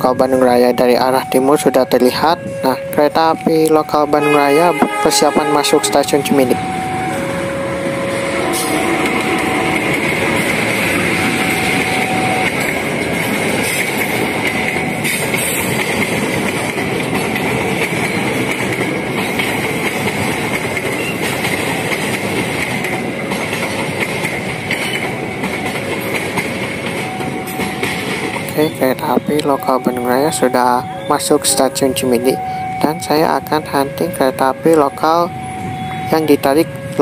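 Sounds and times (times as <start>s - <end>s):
passenger train passing: 0.0s - 37.0s
train wheels clacking over joints: 6.8s - 29.5s.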